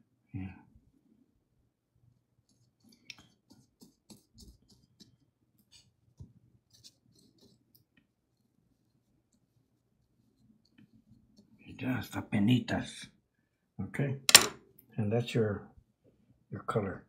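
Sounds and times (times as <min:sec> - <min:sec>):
brush stroking over paper: 0:02.4 - 0:11.8.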